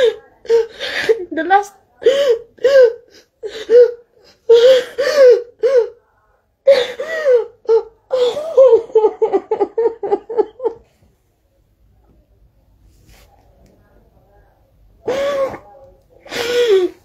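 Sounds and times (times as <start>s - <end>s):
woman sobbing: 2.0s - 6.0s, 6.7s - 10.8s, 16.3s - 17.0s.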